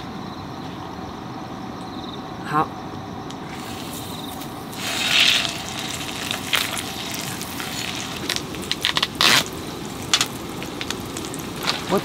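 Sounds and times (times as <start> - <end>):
crackles and pops of frying: 3.5 - 12.0
fish sizzling on a griddle: 3.5 - 12.0.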